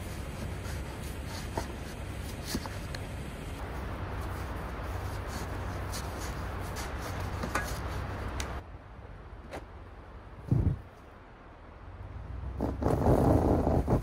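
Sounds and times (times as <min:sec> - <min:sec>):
shovel scraping and crunching snow: 0:00.0 - 0:02.9, 0:03.6 - 0:08.4, 0:12.6 - 0:14.0.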